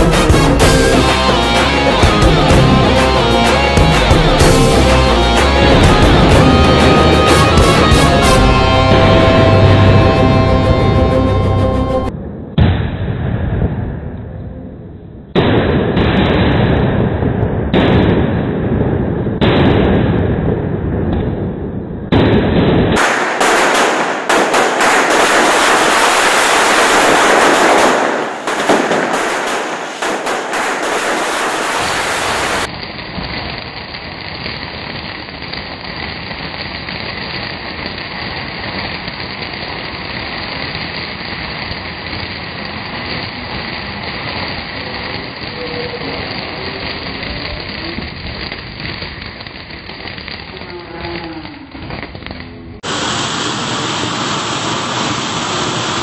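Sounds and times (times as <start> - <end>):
firecrackers banging in rapid chain: 0.0 - 13.9, 15.4 - 56.0
steady hiss: 52.8 - 56.0.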